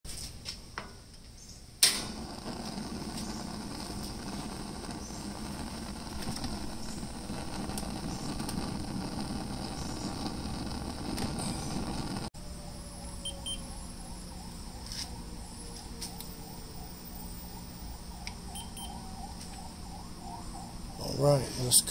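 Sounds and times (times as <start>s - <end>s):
burner flame rushing: 1.8s - 12.3s
gas igniting burst: 1.8s - 12.3s.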